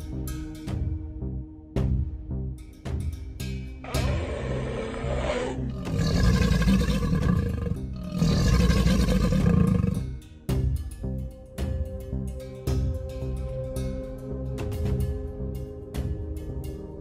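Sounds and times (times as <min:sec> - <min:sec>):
background music: 0:00.0 - 0:17.0
animal roars: 0:03.8 - 0:10.1.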